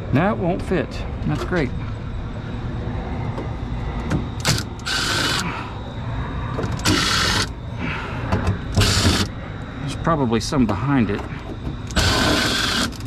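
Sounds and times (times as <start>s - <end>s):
sharp clicks: 4.1s - 5.5s.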